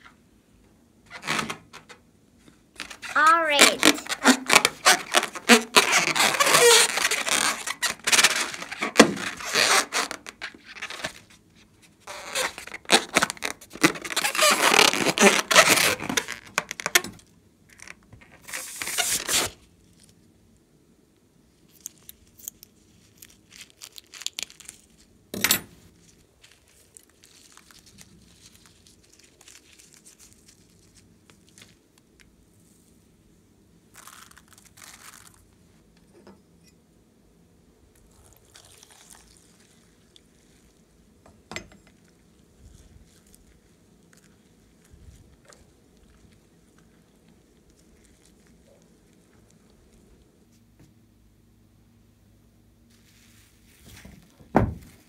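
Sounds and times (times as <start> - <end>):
rubber balloon rubbing: 2.8 - 11.2, 12.1 - 17.0.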